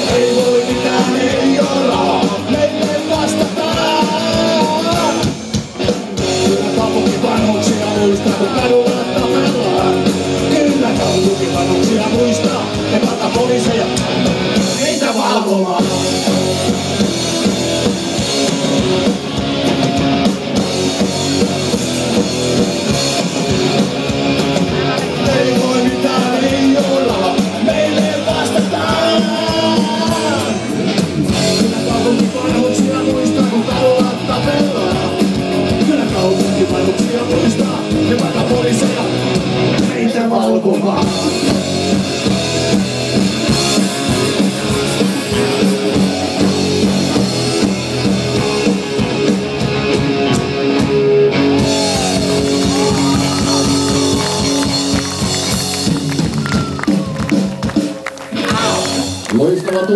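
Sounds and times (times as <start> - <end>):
person singing: 0.0 - 5.4, 6.3 - 14.0, 24.6 - 30.7, 31.4 - 41.8, 51.6 - 55.7, 58.3 - 59.9
bass guitar: 0.0 - 59.9
distorted electric guitars: 0.0 - 59.9
drums: 0.0 - 59.9.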